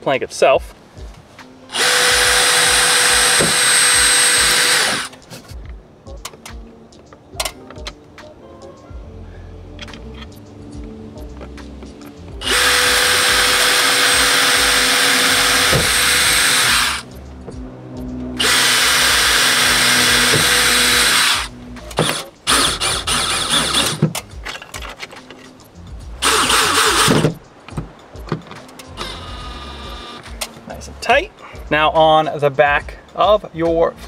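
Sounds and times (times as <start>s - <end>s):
cordless drill boring: 1.7s - 5.1s, 12.4s - 17.0s, 18.4s - 24.0s, 26.2s - 27.3s, 29.0s - 30.2s.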